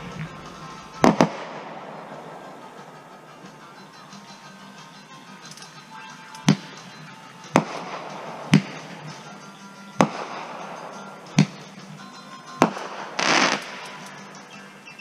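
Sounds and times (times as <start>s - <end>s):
fireworks bangs: 0.0s - 3.2s, 10.0s - 11.6s, 12.6s - 14.0s
fireworks crackle: 0.0s - 5.0s, 5.7s - 14.5s.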